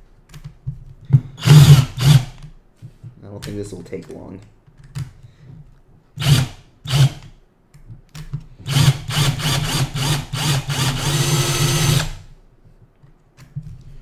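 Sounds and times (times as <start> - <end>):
power drill boring: 1.4 - 2.4, 6.2 - 7.2, 8.6 - 12.2.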